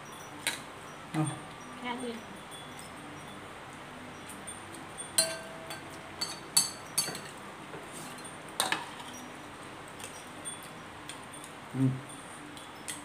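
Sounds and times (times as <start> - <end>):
utensils clinking on ceramic bowls: 5.0 - 7.4, 8.0 - 9.3.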